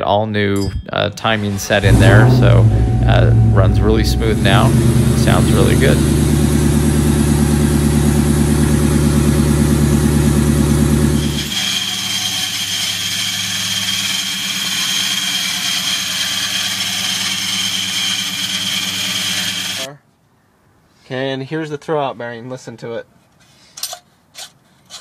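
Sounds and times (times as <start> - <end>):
high-pitched whine: 0.6 - 12.4
car engine idling: 1.4 - 11.5
car engine running: 1.4 - 11.6.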